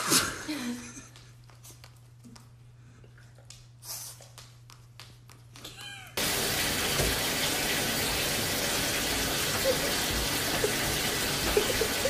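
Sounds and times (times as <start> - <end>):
cat meowing: 5.7 - 6.2
bathtub tap water running: 6.2 - 12.0.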